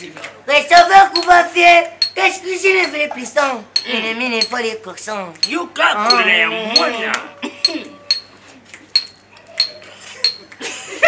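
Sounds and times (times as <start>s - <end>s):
sharp metallic clinks: 2.0s - 2.2s, 5.4s - 6.9s, 7.6s - 8.3s, 9.0s - 10.5s.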